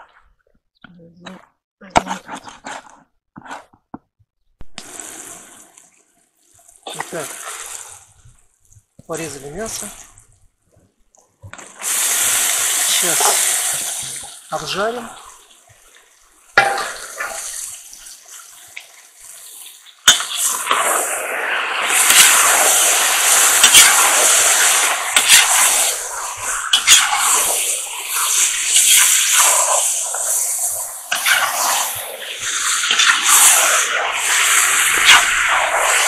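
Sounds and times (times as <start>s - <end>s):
chicken sizzling in hot oil: 6.4s - 8.4s, 11.8s - 36.0s.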